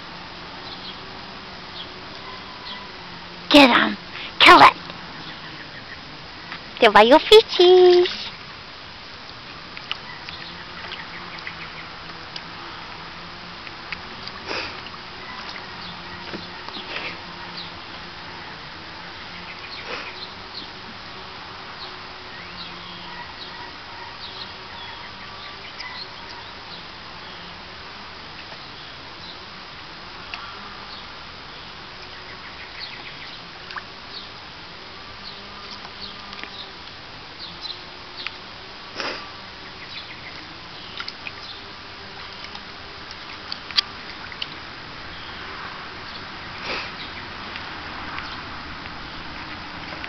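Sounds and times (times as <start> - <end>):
steady hiss: 0.0 - 50.0
small birds chirping: 0.6 - 1.1, 1.7 - 8.4, 9.3 - 12.9, 13.6 - 20.9, 21.7 - 27.7, 28.3 - 29.6, 30.2 - 34.5, 35.2 - 38.6, 39.2 - 50.0
small ticks: 9.2 - 13.0, 35.2 - 37.0, 37.6 - 38.4, 39.7 - 44.6
water splashing and dripping: 42.1 - 45.2.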